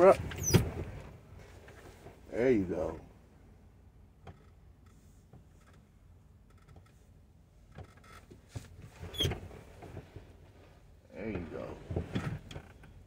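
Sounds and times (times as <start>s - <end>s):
clicks and creaks in truck cab: 0.0s - 2.1s, 4.2s - 10.3s, 11.3s - 13.0s.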